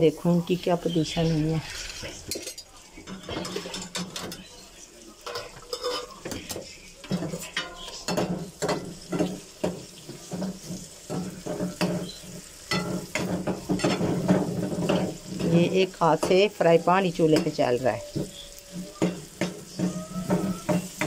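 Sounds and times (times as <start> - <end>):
slices sizzling in frying pan: 0.9 - 21.0
ladle scraping and clinking pan: 1.6 - 4.5, 5.3 - 9.4, 10.2 - 15.6.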